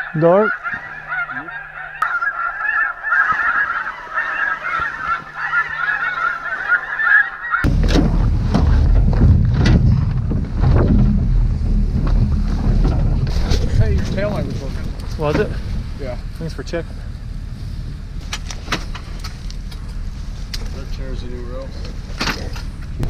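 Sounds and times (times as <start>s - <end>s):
geese honking: 0.0s - 7.7s
wind buffeting microphone: 7.6s - 23.0s.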